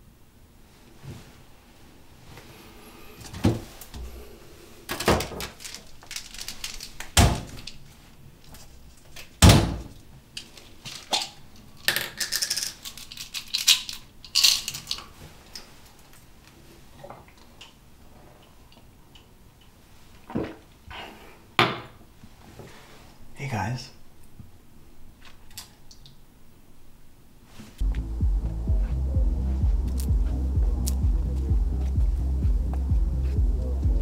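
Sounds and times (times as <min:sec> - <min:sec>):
pill bottle rattling: 0:12.1 - 0:15.0.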